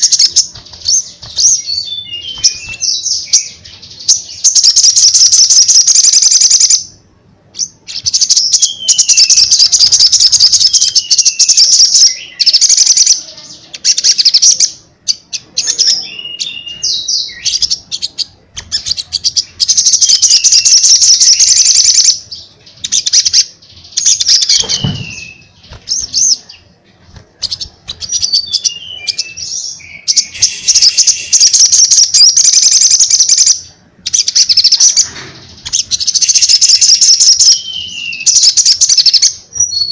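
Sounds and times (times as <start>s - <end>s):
bird singing trilled phrases: 0.0s - 39.9s
thump: 24.6s - 25.2s.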